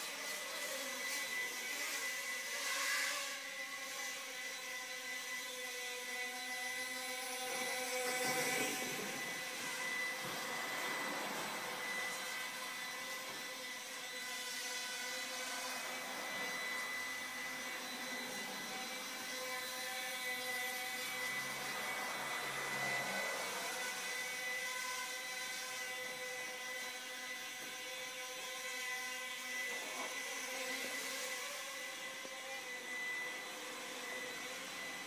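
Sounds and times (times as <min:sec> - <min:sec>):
quadcopter propellers whining: 0:00.0 - 0:35.0.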